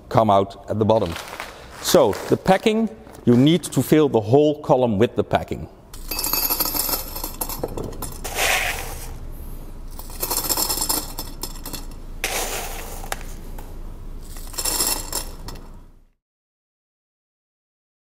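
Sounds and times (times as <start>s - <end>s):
packing clinking into metal tube: 6.0s - 9.1s, 9.9s - 13.4s, 14.2s - 15.8s.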